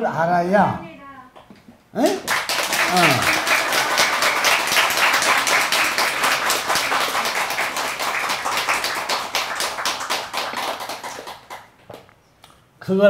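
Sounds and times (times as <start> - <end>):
audience clapping: 2.0 - 12.1.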